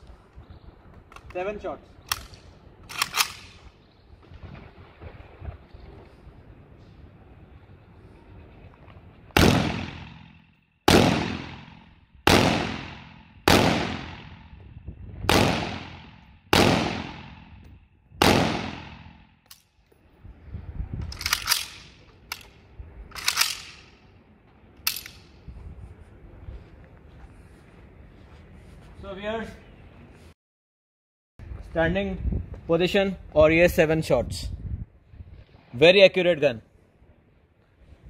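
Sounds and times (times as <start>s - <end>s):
rifle metallic clicks and clatter: 0.9s - 3.7s, 19.4s - 20.0s, 21.0s - 24.1s, 24.8s - 25.4s
rifle shots with echo: 9.4s - 14.5s, 15.3s - 17.6s, 18.2s - 19.3s.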